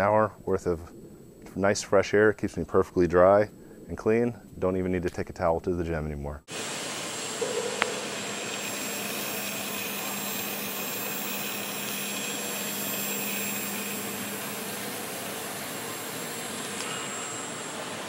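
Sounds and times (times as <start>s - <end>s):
propeller motor whirring: 7.1s - 18.0s.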